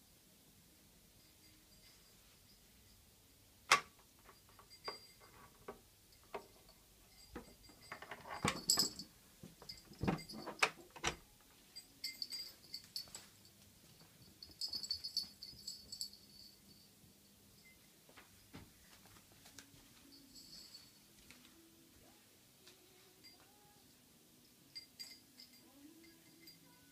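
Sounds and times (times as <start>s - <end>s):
light jingling: 1.2s - 3.1s, 4.2s - 10.9s, 11.6s - 18.5s, 19.9s - 21.3s, 24.4s - 26.9s.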